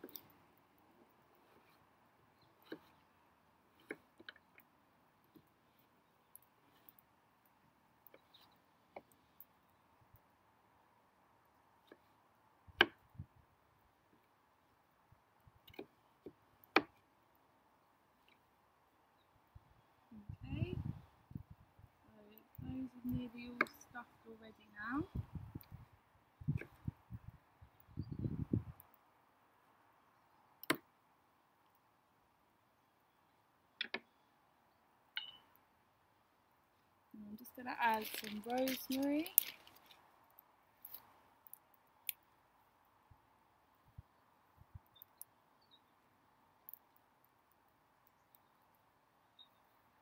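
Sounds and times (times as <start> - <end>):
click with high ring: 35.2 - 35.5.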